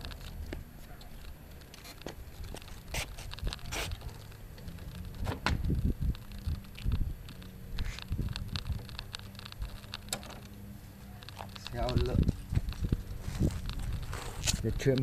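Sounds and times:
sharp clicks: 3.2 - 10.6
trimmer wheels scraping on concrete: 11.5 - 14.9.

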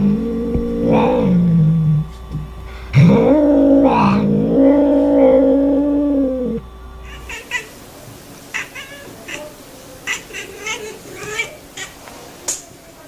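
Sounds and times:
cat yowling: 3.1 - 7.8, 8.5 - 12.0.

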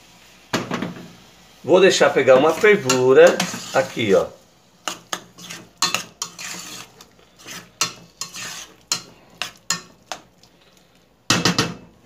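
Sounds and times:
spoon scraping through sauce: 3.3 - 4.0, 4.8 - 10.6.

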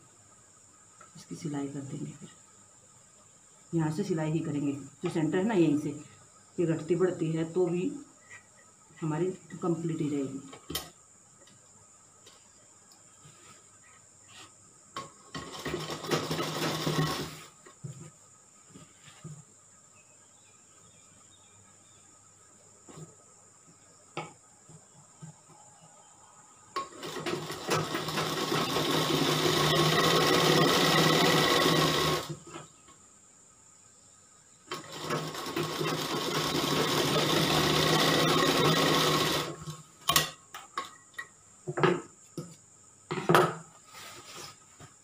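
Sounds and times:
sewing machine stitching: 15.4 - 17.4, 26.9 - 32.4, 34.7 - 39.7.

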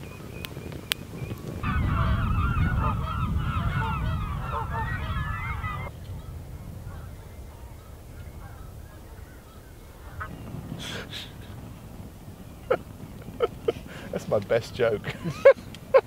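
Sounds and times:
wood fire crackling: 0.0 - 2.4, 5.6 - 16.0
geese honking: 0.9 - 15.6
low rumble: 1.6 - 13.9.

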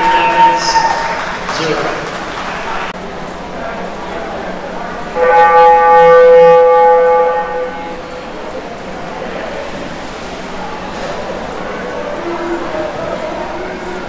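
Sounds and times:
game horn blast: 5.1 - 8.2.

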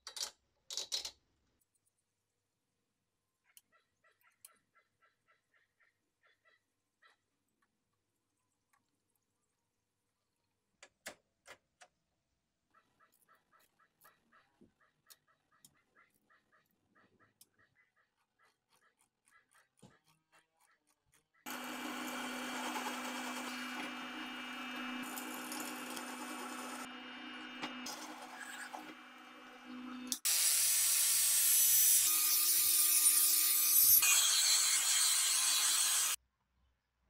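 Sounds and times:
harsh machining noise: 21.5 - 30.4
power tool motor humming: 21.5 - 31.3.

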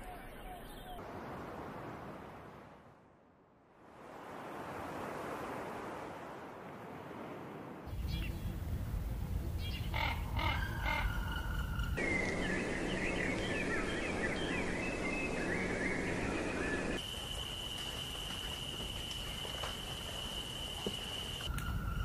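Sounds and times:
small birds chirping: 9.5 - 17.0.

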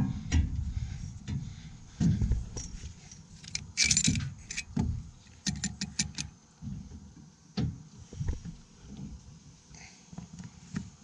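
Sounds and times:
metal fuel nozzle clanking: 2.6 - 6.3.

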